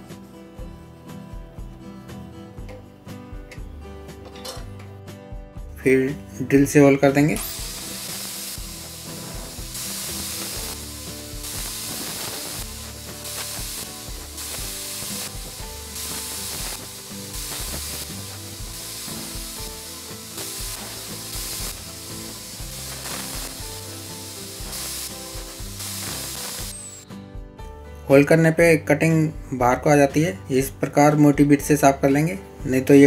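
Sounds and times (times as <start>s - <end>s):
background music: 0.0s - 33.0s
hissing percussion: 7.3s - 27.2s.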